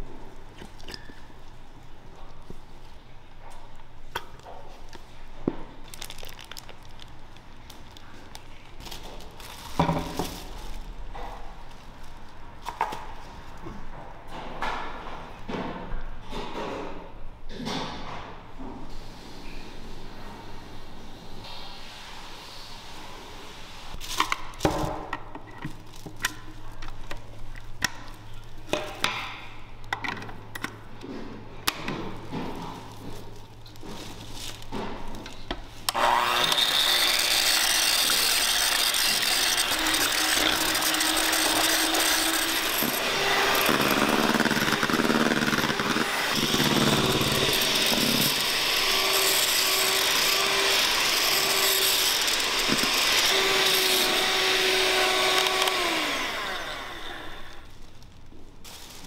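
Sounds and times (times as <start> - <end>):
plastic sheet rustling: 5.7 - 12.4, 32.4 - 35.9, 57.4 - 59.0.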